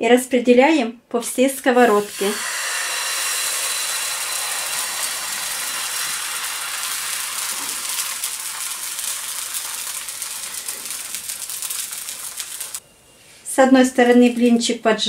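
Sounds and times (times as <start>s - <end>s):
batter sizzling in frying pan: 1.8s - 12.8s
small crackling pops: 6.8s - 12.8s.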